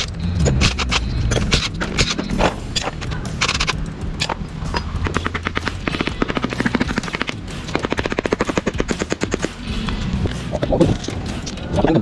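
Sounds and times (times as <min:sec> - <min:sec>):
hand ratchet clicking rapidly: 0:02.8 - 0:09.5.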